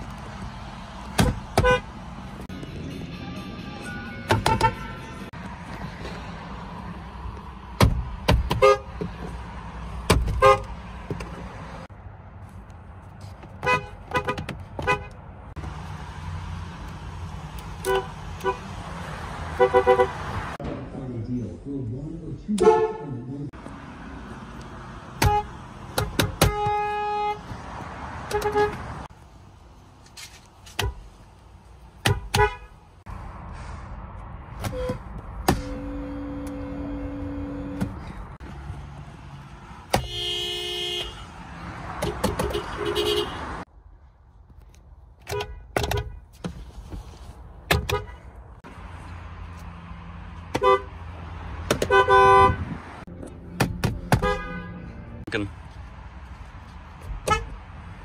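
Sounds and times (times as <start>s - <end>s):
car horns honking: 1.1s - 5.4s, 8.3s - 9.3s, 10.0s - 10.8s, 13.6s - 15.3s, 17.6s - 18.8s, 19.4s - 20.6s, 22.5s - 23.3s, 25.1s - 29.1s, 32.0s - 32.9s, 34.6s - 38.4s, 39.8s - 43.6s, 45.2s - 46.4s, 47.7s - 48.3s, 50.4s - 55.4s, 57.2s - 57.6s.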